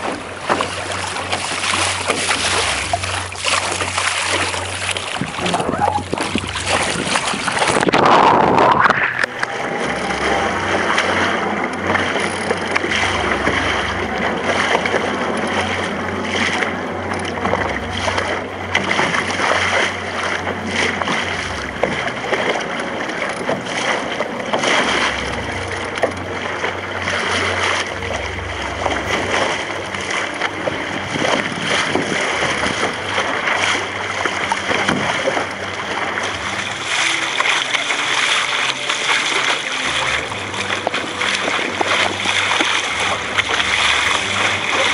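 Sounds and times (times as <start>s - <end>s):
water splashing along a hull: 0.0s - 44.9s
wind on microphone: 4.5s - 22.3s, 23.1s - 37.2s.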